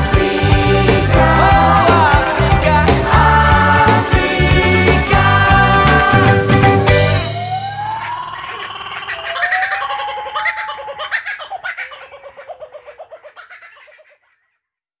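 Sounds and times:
jungle animal calls and chattering: 7.5 - 14.8.

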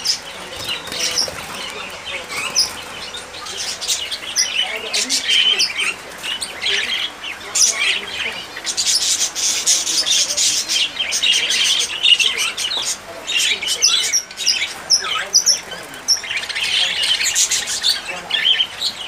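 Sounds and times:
small birds chirping: 0.0 - 19.0.

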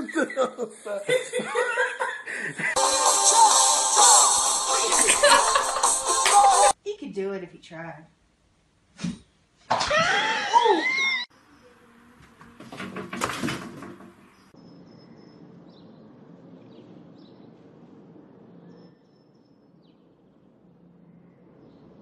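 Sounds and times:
knocks and scrabbling: 12.3 - 14.5.

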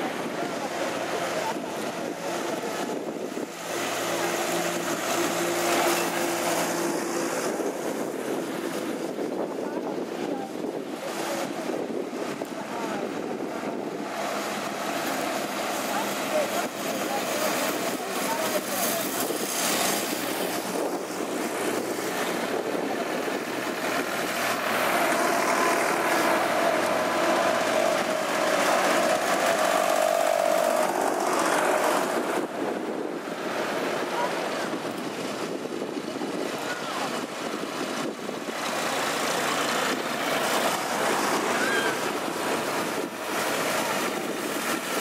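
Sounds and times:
rushing noise: 0.0 - 45.0
tractor engines driving past: 0.0 - 45.0
distant tractor engine humming: 19.2 - 34.5.

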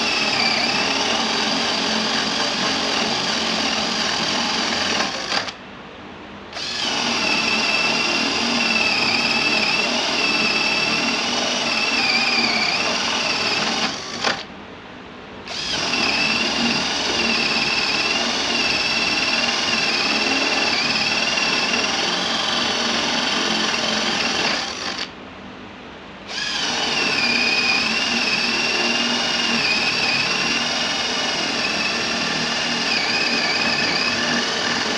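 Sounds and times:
cordless drill boring into wood: 0.0 - 5.6, 6.6 - 14.5, 15.5 - 25.1, 26.3 - 34.9.

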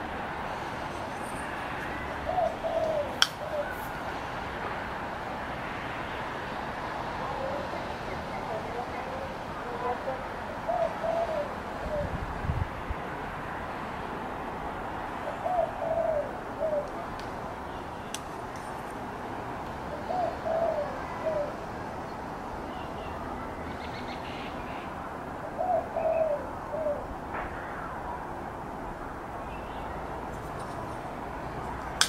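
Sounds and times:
dove cooing: 1.9 - 3.8, 8.5 - 12.2, 15.2 - 16.9, 19.9 - 21.6, 25.4 - 27.1.

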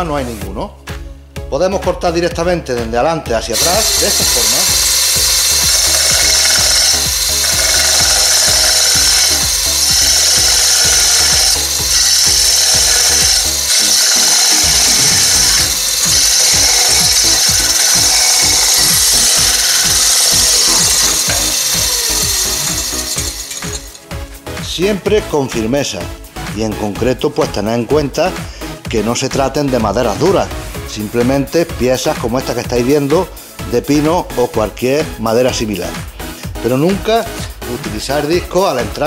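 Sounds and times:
saw disc cutting wood: 3.6 - 24.6.

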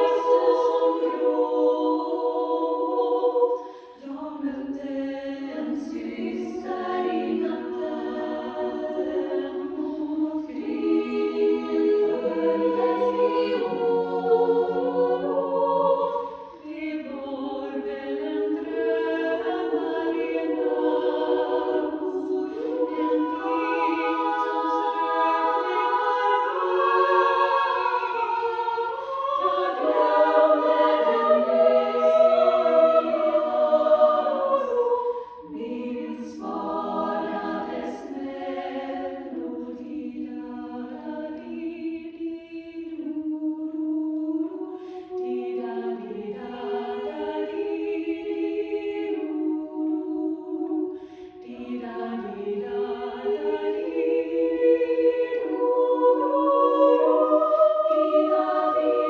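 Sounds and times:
women's choir singing: 0.0 - 59.0.

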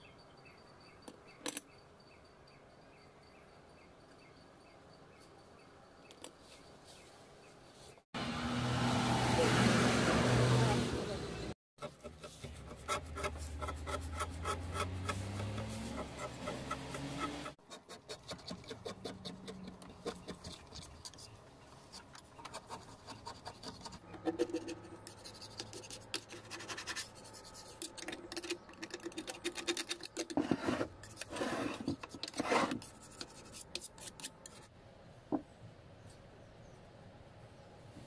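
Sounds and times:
scraper blade scraping metal: 11.8 - 21.2, 22.4 - 34.7.

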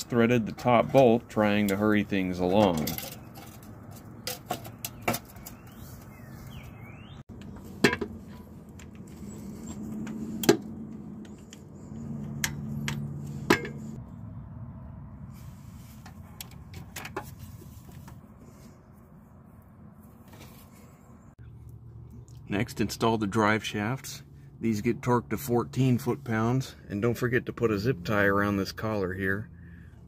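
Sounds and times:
metal tools clinking: 0.3 - 5.7.

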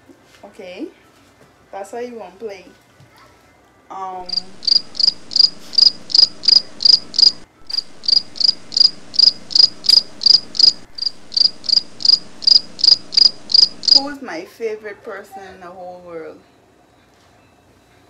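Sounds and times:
cricket chirping: 4.2 - 14.2.

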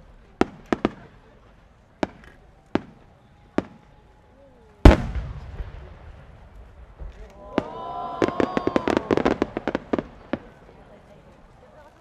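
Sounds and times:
sharp firework reports: 4.8 - 7.8.

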